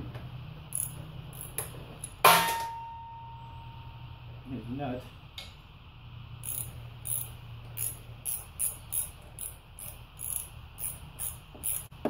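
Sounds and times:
ratchet wrench clicking: 0.7 - 2.2, 6.4 - 12.0.

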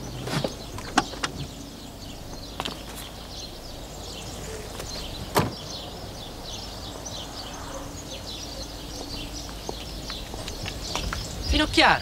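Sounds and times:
small birds chirping: 0.0 - 12.0
car door slamming: 4.5 - 5.9.

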